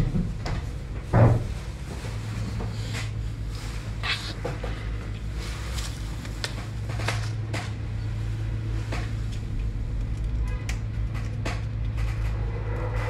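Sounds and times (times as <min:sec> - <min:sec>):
low hum: 0:06.8 - 0:13.0.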